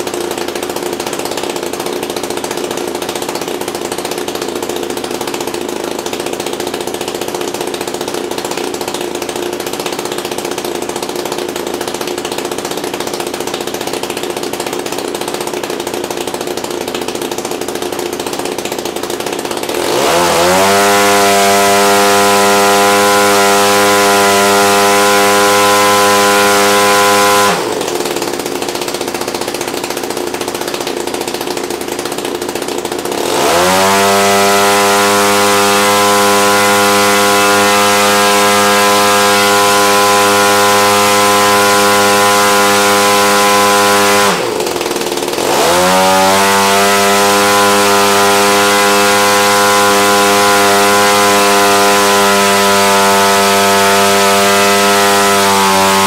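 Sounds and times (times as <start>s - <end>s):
engine revving with propeller: 0.0s - 56.0s.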